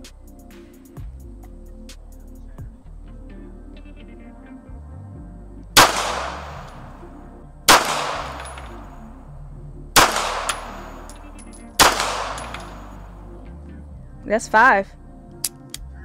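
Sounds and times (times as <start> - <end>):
pistol shots: 5.8 - 7.1, 7.7 - 9.1, 10.0 - 13.2.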